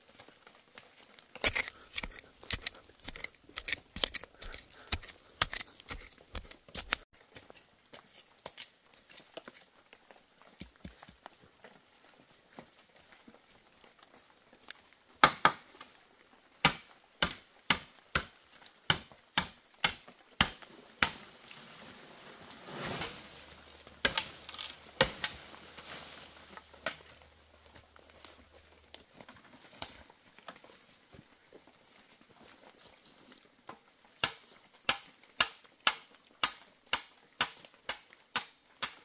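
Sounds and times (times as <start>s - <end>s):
rustling: 20.6s - 33.4s.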